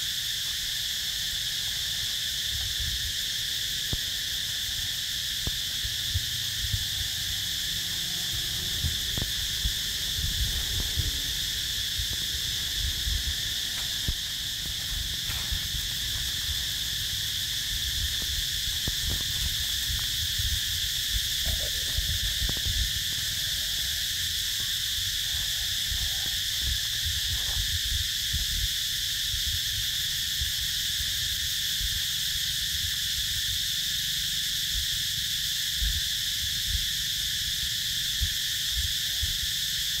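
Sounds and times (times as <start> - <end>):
insect chorus droning: 0.0 - 40.0
low rumble: 5.8 - 28.7.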